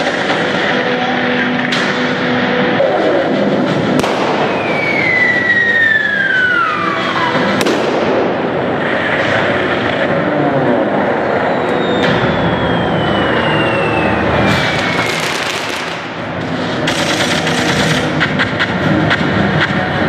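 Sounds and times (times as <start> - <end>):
noisy background: 0.0 - 20.0
sharp bangs: 3.5 - 9.5, 11.9 - 20.0
falling whistle: 4.4 - 7.5, 11.2 - 15.6.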